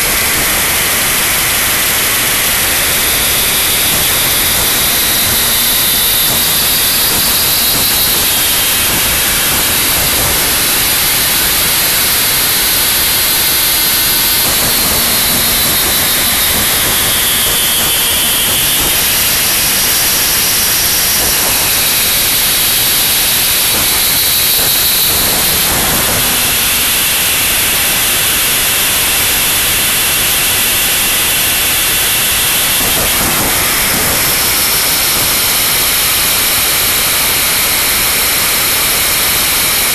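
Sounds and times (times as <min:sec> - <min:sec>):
dense static noise music: 0:00.0 - 0:30.5, 0:31.5 - 0:36.4.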